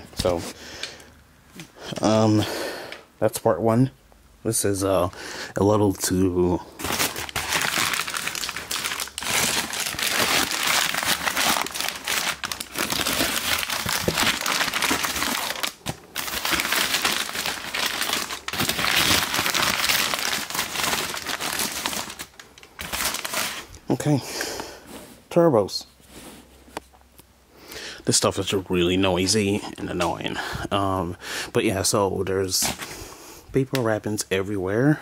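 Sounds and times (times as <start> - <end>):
packing paper rustling: 6.7 - 23.8.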